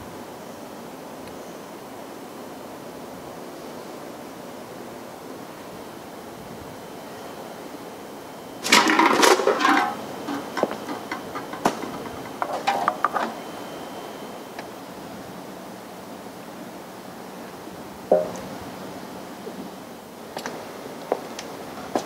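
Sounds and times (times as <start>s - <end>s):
can clattering on concrete steps: 8.6s - 13.4s, 18.1s - 18.4s
cans knocking and clinking: 8.6s - 13.4s, 18.1s - 18.4s.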